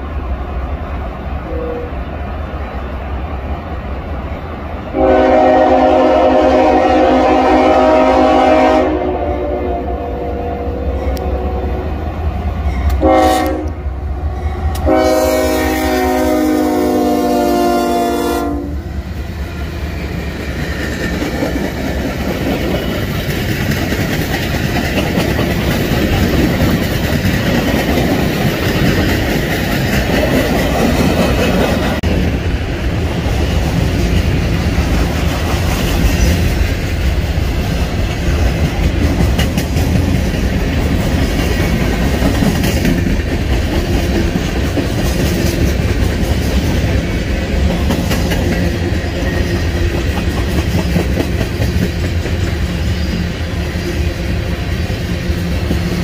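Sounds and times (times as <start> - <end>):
train cars rumbling past: 0.0 - 56.0
locomotive horn: 1.4 - 2.0, 4.9 - 11.9, 12.8 - 18.8
wheels clacking over rail joints: 20.4 - 32.2.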